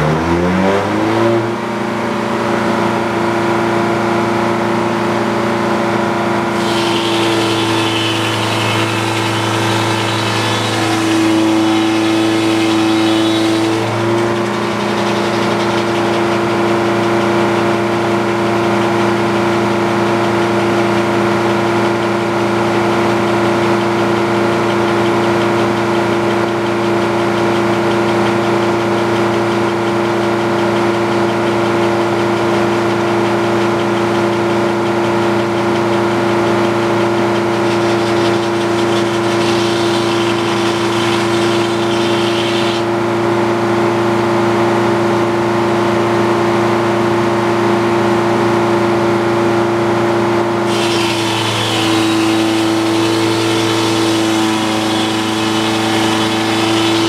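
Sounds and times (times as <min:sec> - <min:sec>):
sawmill engine running: 0:00.0 - 0:57.0
circular saw cutting log: 0:06.2 - 0:30.2, 0:31.1 - 0:43.2, 0:50.4 - 0:57.0.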